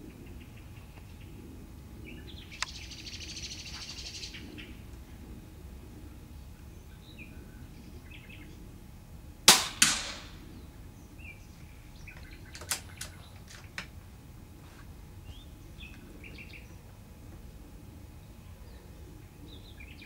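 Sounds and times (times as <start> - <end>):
bird chirps: 2.1 - 4.8
faint sharp clicks: 2.6 - 2.8
rifle shot: 9.5 - 10.5
sharp crack: 9.5 - 10.5.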